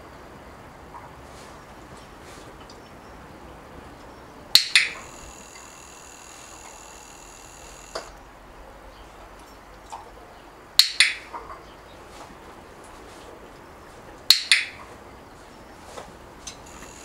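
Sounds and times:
training clicker clicking: 4.6 - 8.2, 10.8 - 11.3, 14.3 - 14.8.

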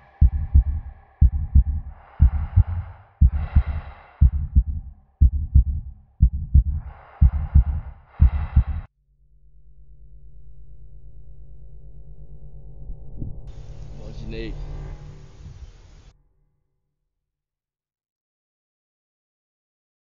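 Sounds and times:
heartbeat thumps: 0.0 - 8.9
heavy breathing: 0.0 - 8.9.

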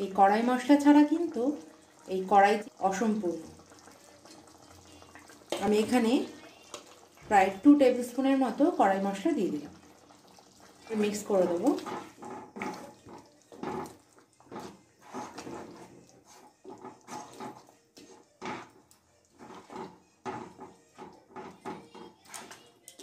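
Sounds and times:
spatula scraping wet curry: 11.5 - 22.5.

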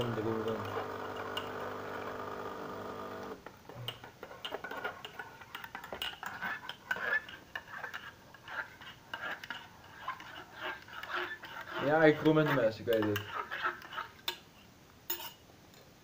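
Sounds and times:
knife scraping in pan: 4.1 - 15.4.

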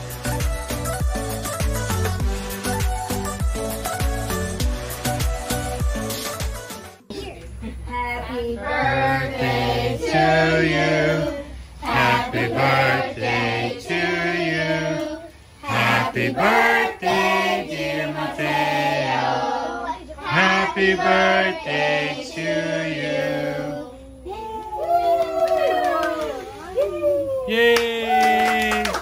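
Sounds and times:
group singing birthday song: 8.1 - 24.2.

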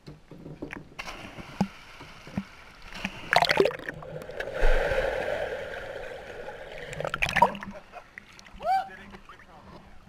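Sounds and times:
water splashing: 1.0 - 8.6
loud splash: 3.2 - 7.6
muffled underwater bubbles: 3.3 - 7.7.

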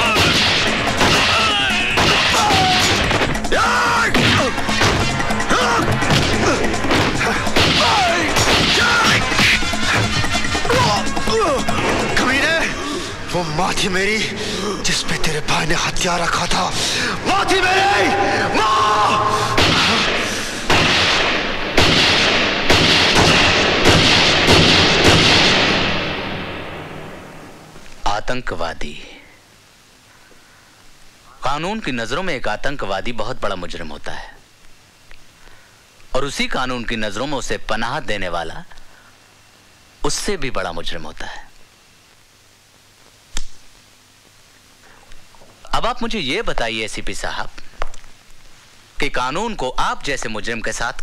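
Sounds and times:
gunshots with echo: 0.0 - 3.3, 6.0 - 10.1, 19.4 - 27.3
dramatic background music: 0.0 - 13.2
hard blows: 0.0 - 13.3, 16.7 - 27.8.

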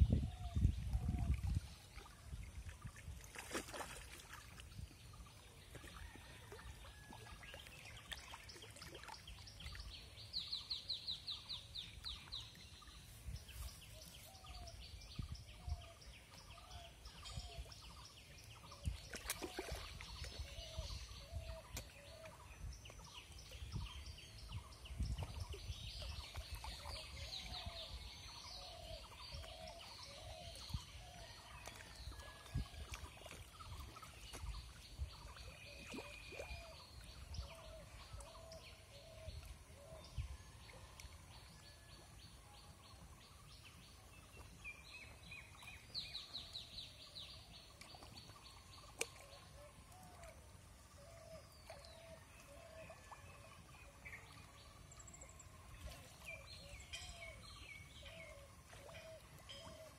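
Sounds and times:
sharp knocks or splashes: 3.2 - 4.4
birdsong with ticking trills: 4.8 - 59.9.

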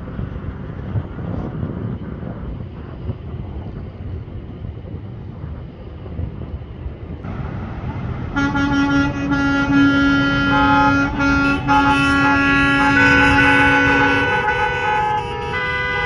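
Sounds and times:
vehicle horns honking: 8.3 - 16.0.

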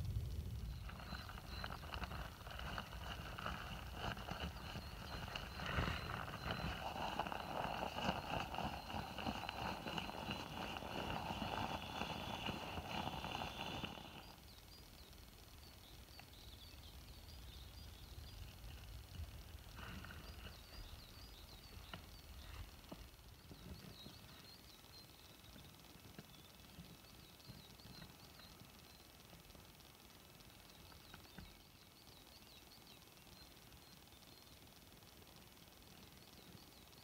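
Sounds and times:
nylon fabric crackling: 0.9 - 14.2.

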